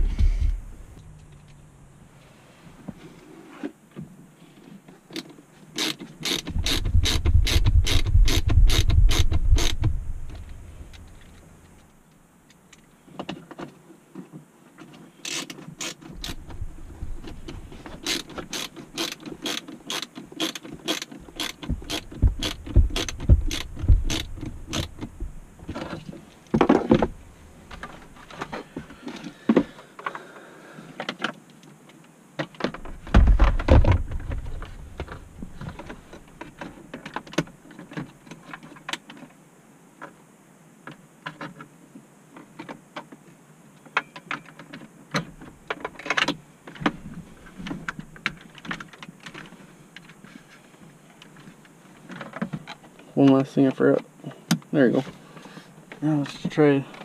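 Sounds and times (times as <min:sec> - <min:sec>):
heavier knocks: 0:21.6 - 0:25.4.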